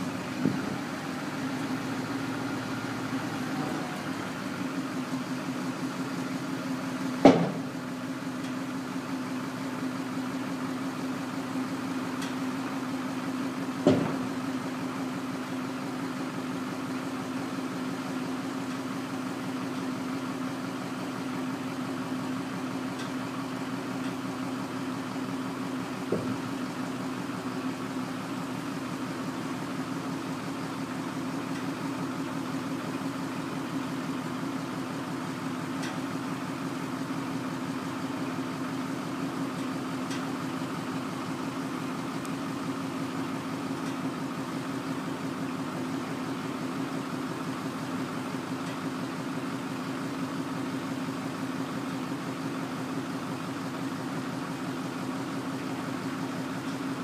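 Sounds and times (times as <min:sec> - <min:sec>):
tractor engine idling: 0:00.0 - 0:57.0
sharp knocks: 0:07.2 - 0:07.6.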